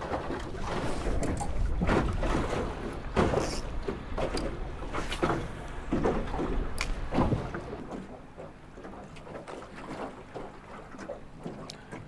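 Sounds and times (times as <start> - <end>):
wind rumbling on microphone: 0.0 - 8.0
waves slapping against boat hull: 0.0 - 12.0.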